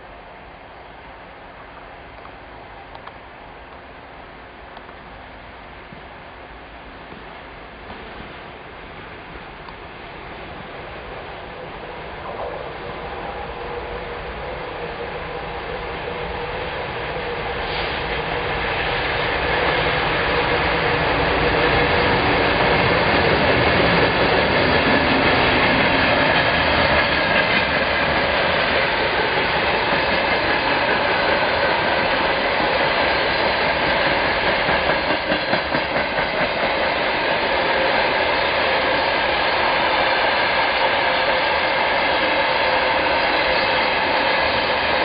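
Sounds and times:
diesel locomotive engine: 0.0s - 45.0s
freight train wheels clattering: 17.6s - 39.2s.

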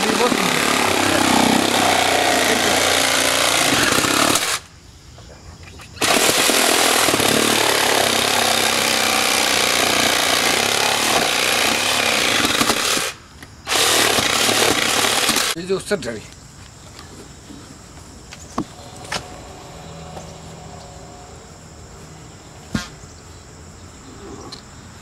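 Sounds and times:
reciprocating saw cutting wood: 0.0s - 4.6s, 6.0s - 15.6s.

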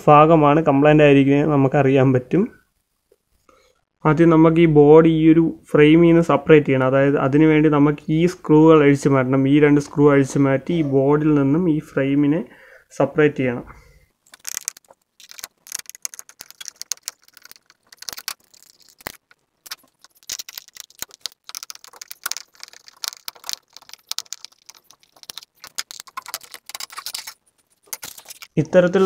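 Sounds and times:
small clicks scrapes and rattles: 14.3s - 28.6s.

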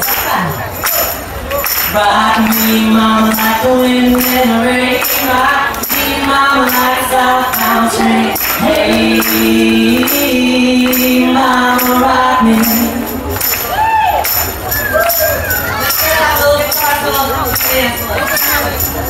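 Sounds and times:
tambourine shaken: 0.0s - 19.0s
crowd singing along: 1.6s - 13.6s, 15.8s - 19.0s
man and woman singing: 1.8s - 13.3s, 15.9s - 18.8s.

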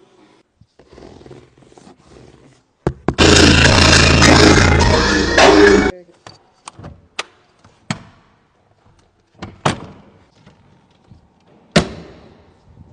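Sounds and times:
loud bass-heavy music: 3.2s - 5.9s.

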